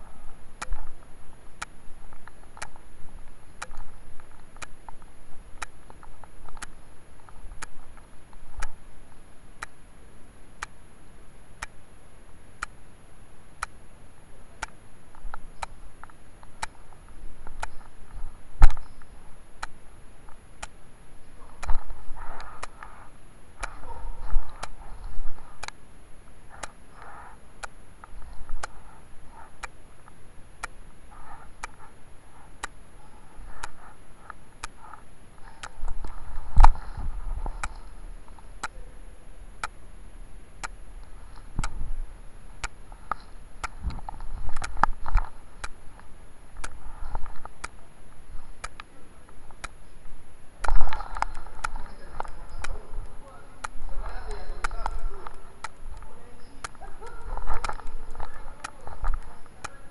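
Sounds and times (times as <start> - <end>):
regular ticks: 0.0 - 59.9
steady hiss: 0.0 - 59.9
muffled indistinct sounds: 40.6 - 59.9.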